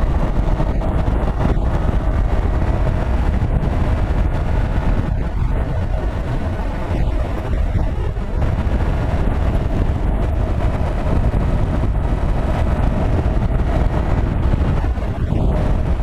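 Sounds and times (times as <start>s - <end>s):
motorcycle engine cruising: 0.0s - 16.0s
wind buffeting microphone: 0.0s - 16.0s.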